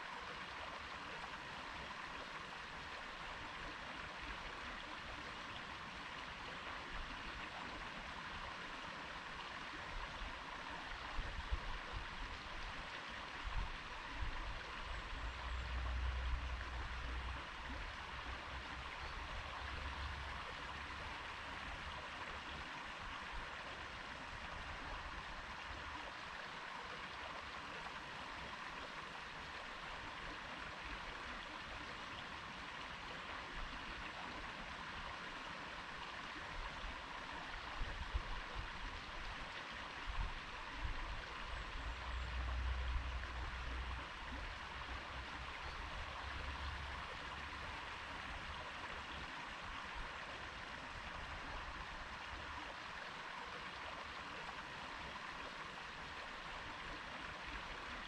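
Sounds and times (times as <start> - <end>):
stream babbling: 0.0 - 58.0.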